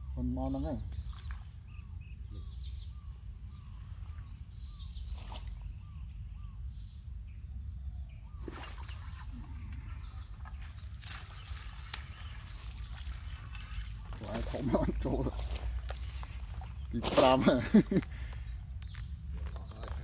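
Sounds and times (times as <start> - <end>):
bird calling: 0.0 - 7.1
higher bird chirps: 0.0 - 19.8.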